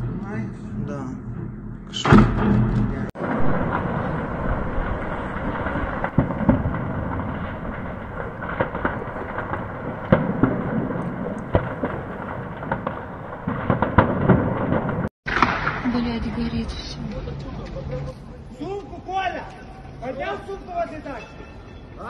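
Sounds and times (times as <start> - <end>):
distant gunfire cracks: 5.3 - 15.9.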